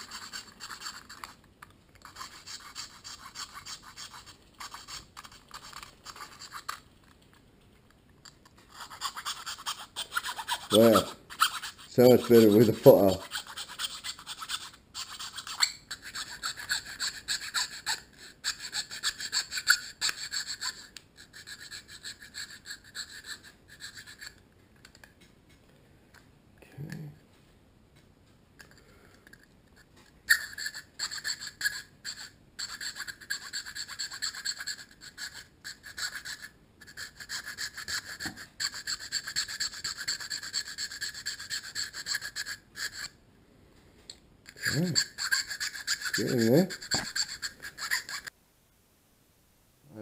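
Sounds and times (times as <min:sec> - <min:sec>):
file rasping on plastic: 0:00.0 - 0:01.4, 0:02.0 - 0:06.8, 0:08.7 - 0:24.4, 0:30.4 - 0:43.1, 0:44.5 - 0:48.3.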